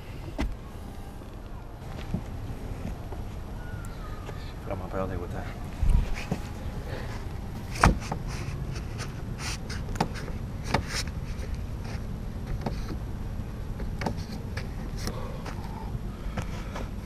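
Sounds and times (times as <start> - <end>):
low rumble on microphone: 5.5 - 9.6.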